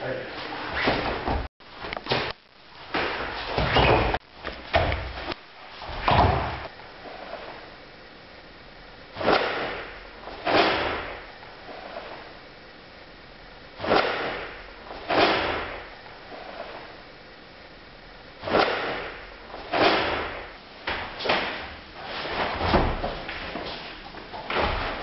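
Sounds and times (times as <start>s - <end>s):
heavy thud: 19.8s - 25.0s.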